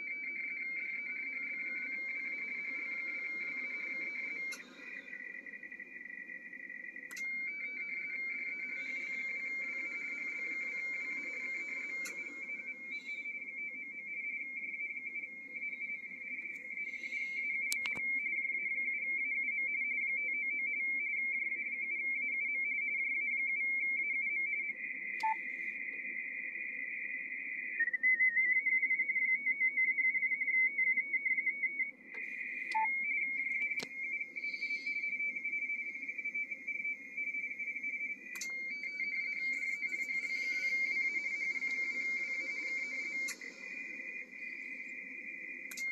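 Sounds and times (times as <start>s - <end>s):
two-tone data signal warble: 0.0s - 20.0s, 32.3s - 45.9s
radio teletype warble: 33.3s - 45.9s.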